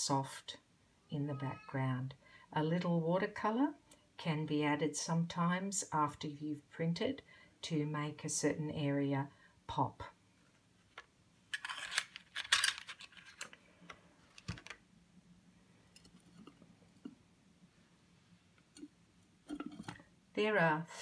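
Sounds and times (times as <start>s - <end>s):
cards rustling: 10.8s - 14.8s.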